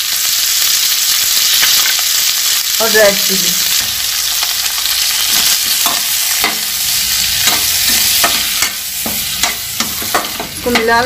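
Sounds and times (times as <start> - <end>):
vegetables sizzling in hot oil: 0.0 - 11.0
metal spatula scraping a pan: 5.2 - 11.0.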